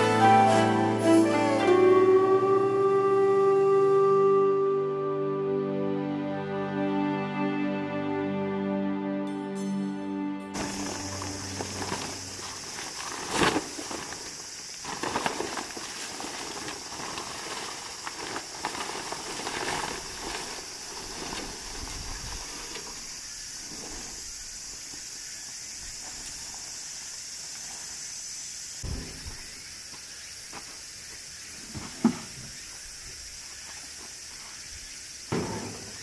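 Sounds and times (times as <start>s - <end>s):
high insect drone: 0.0s - 7.3s, 10.6s - 36.0s
tarp rustling and crackling: 10.6s - 25.2s.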